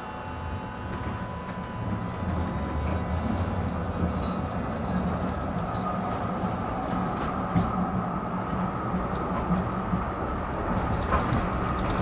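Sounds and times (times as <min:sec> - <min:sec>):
tram wheels rumbling on rails: 0:00.4 - 0:12.0.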